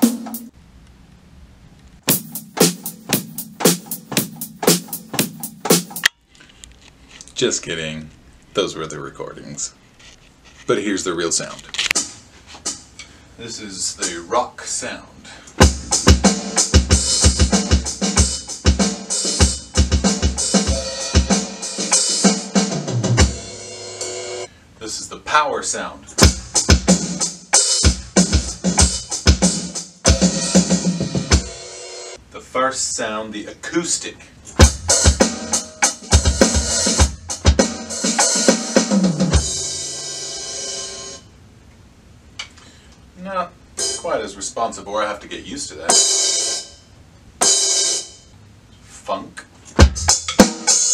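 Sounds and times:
bass drum and snare hits: 0:00.0 - 0:00.5, 0:02.0 - 0:06.1, 0:15.6 - 0:21.6, 0:26.2 - 0:31.5, 0:34.6 - 0:39.7, 0:49.8 - 0:50.7.

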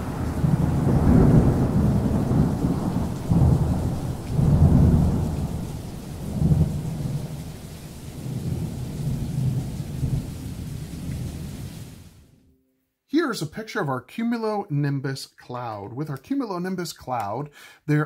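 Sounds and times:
rolling thunder: 0:00.0 - 0:12.3
rain: 0:00.0 - 0:12.4.

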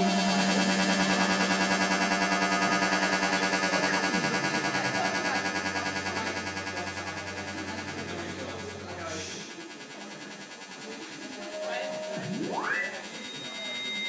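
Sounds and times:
low synth tone sliding down: 0:00.0 - 0:09.1
buzzing synthesized electronic texture: 0:00.0 - 0:14.0.

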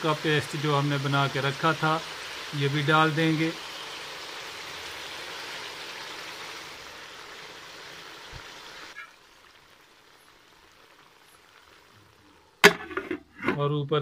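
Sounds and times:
food sizzling in a pot: 0:00.0 - 0:13.4.

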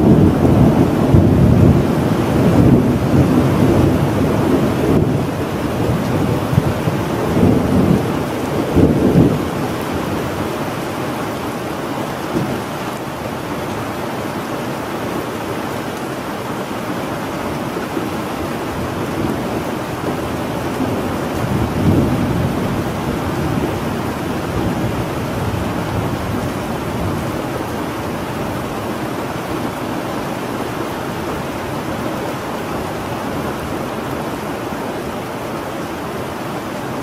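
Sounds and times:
low thunder rumble: 0:00.0 - 0:10.2, 0:18.4 - 0:27.6
steady rain: 0:00.0 - 0:37.0.

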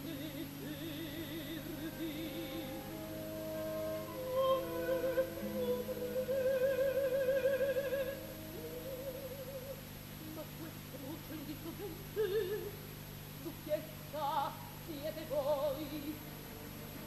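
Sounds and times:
orchestra: 0:00.0 - 0:09.9, 0:15.3 - 0:17.0
woman singing opera: 0:00.0 - 0:12.8, 0:13.4 - 0:17.0.

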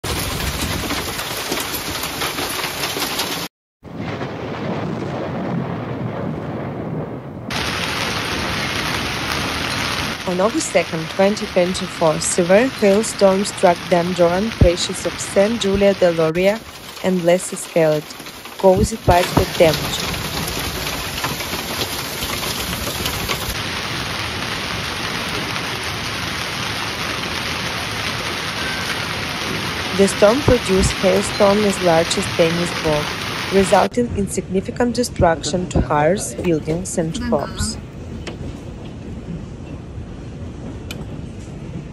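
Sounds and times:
hail clatter: 0:00.0 - 0:03.5, 0:07.5 - 0:33.9
thunder rumble: 0:00.0 - 0:41.9.

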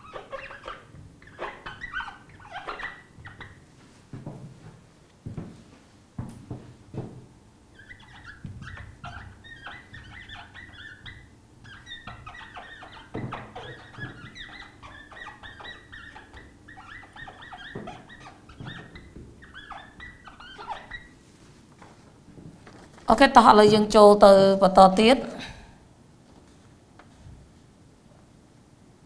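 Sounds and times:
marker squeaking on whiteboard: 0:00.0 - 0:03.7, 0:07.7 - 0:21.2.

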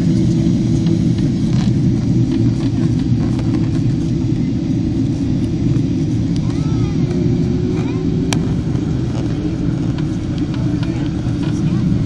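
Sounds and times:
airplane cabin engine rumble: 0:00.0 - 0:12.0
faint voices: 0:06.3 - 0:12.0.

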